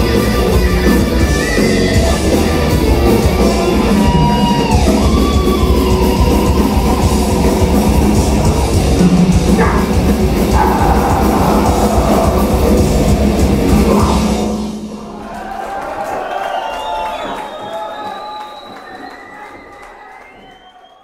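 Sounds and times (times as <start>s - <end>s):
heavy metal band playing: 0.0s - 15.4s.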